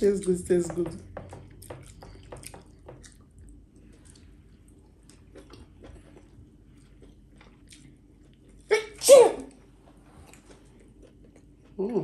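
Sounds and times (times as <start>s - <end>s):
chewing and wet mouth clicks: 4.9s - 8.6s.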